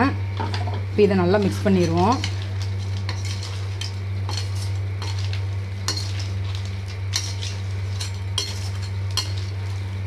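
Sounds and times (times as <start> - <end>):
steady low hum: 0.0 - 10.0
gravy sizzling: 1.3 - 10.0
ladle scraping metal pot: 1.8 - 9.8.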